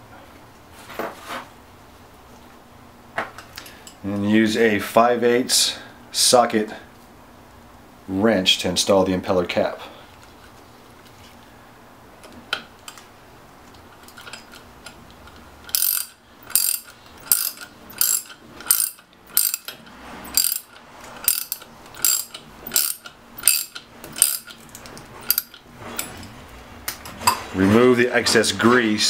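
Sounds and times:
ratchet wrench clicking: 15.6s - 26.1s.

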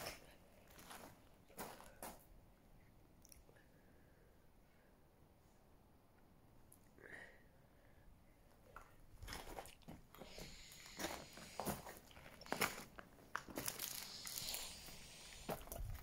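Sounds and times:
sharp crackles: 10.3s - 16.0s
footsteps crunching on dry leaves: 10.9s - 16.0s.

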